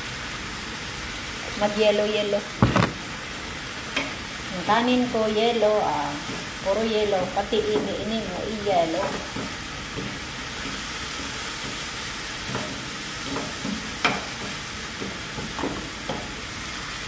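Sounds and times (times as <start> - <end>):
rice sizzling in pan: 0.0 - 17.0
spatula knocking pan: 12.4 - 16.4.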